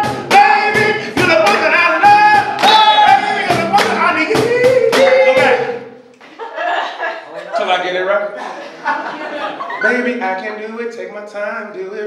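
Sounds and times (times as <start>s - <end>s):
strummed acoustic guitar: 0.0s - 5.8s
person singing: 0.0s - 5.9s
sharp steady beat: 0.0s - 6.2s.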